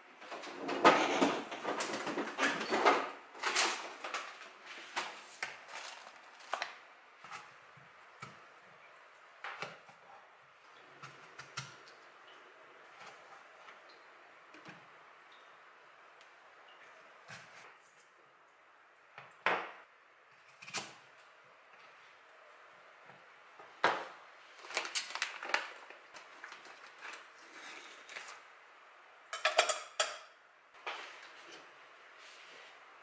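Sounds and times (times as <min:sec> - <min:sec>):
plastic bag handled: 0:03.4 - 0:07.5, 0:24.6 - 0:28.4.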